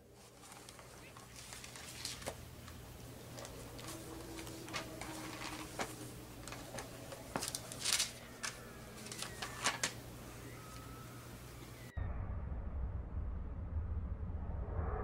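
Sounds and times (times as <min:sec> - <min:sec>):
book pages being flipped: 0:00.0 - 0:10.1.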